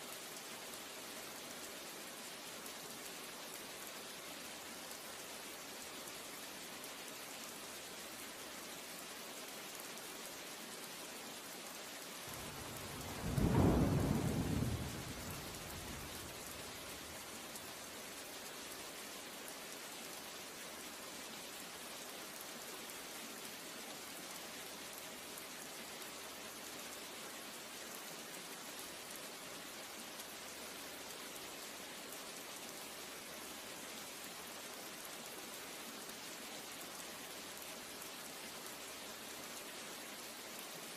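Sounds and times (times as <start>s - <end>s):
steady rain hiss: 0.0s - 40.9s
thunder rumble: 12.3s - 17.2s.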